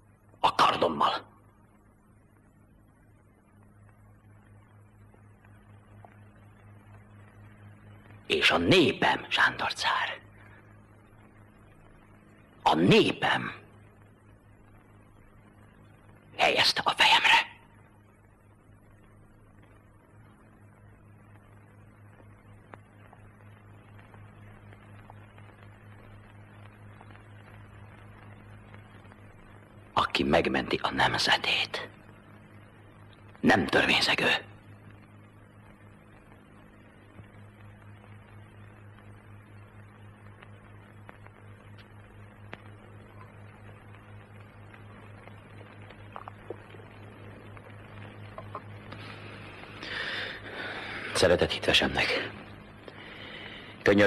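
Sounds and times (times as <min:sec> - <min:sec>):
faint hiss: 0:00.0 - 0:54.0
low hum: 0:00.0 - 0:54.0
faint clicks: 0:18.0 - 0:29.9, 0:34.6 - 0:51.2.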